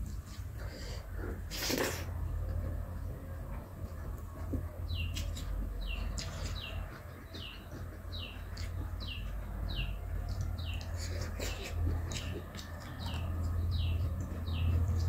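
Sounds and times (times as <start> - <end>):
person chewing food: 0.0 - 15.0
steady low hum: 0.0 - 15.0
bird chirping: 4.9 - 15.0.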